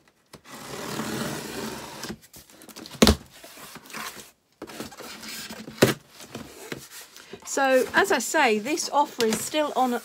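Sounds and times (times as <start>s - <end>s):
cardboard rustling: 0.4s - 10.0s.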